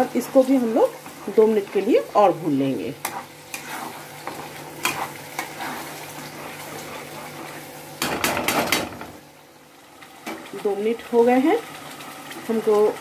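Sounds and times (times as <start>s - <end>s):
paste sizzling in oil: 0.0s - 8.3s
spatula scraping a pan: 2.8s - 8.8s.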